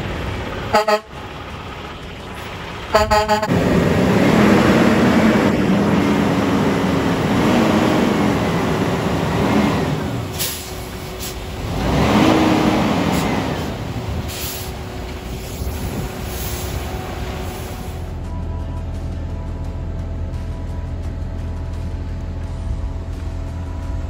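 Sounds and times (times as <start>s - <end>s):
diesel engines running: 0.0s - 24.0s
short high air hisses: 10.3s - 11.5s, 14.3s - 14.8s.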